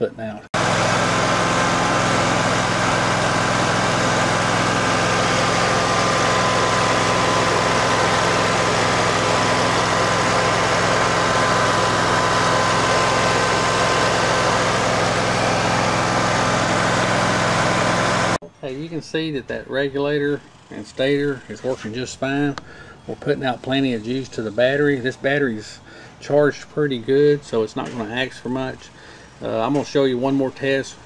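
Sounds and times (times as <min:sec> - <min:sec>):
engine drone: 0:00.6 - 0:18.4.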